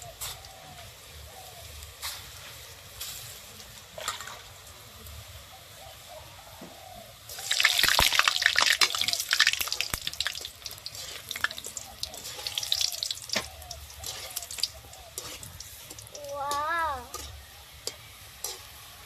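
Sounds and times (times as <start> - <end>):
fritters sizzling in hot oil: 0.0 - 19.0.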